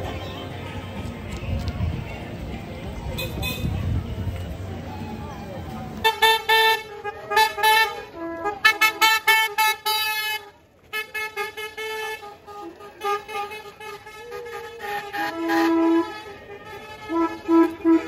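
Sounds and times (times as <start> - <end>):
golf cart horns beeping: 3.1 - 3.9, 6.0 - 18.0.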